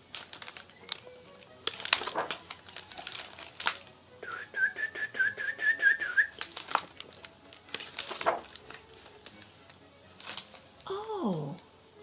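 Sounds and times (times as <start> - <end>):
book pages rustling: 0.0 - 3.9, 6.4 - 10.9
person whistling bird-like call: 4.2 - 6.4.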